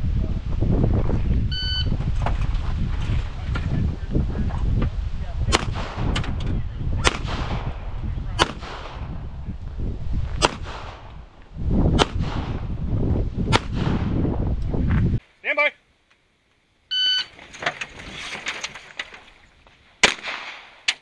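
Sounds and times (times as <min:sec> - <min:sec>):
wind rumble on microphone: 0:00.0 - 0:15.2
pistol shots: 0:05.5 - 0:06.2, 0:07.0 - 0:07.8, 0:08.4 - 0:09.1, 0:10.4 - 0:11.1, 0:12.0 - 0:12.6, 0:20.0 - 0:20.9.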